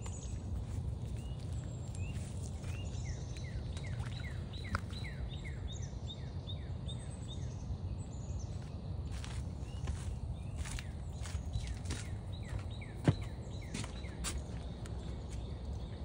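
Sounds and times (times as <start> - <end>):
small birds chirping: 0.0 - 16.0
steady low rumble: 0.0 - 16.0.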